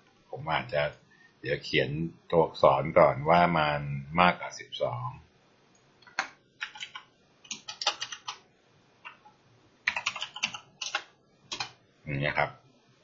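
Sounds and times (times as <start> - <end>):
typing on computer keyboard: 6.1 - 8.4, 9.9 - 11.8.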